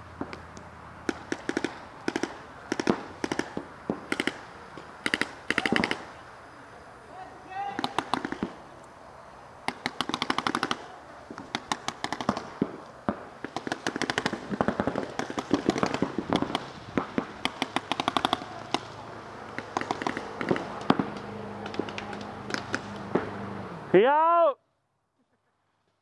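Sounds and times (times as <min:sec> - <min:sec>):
paintball markers firing: 0:00.3 - 0:06.1, 0:07.7 - 0:08.6, 0:09.6 - 0:23.3.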